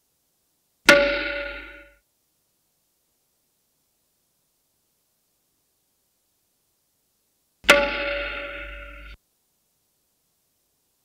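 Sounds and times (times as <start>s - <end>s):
metallic clang ringing: 0.9s - 2.0s, 7.6s - 9.2s.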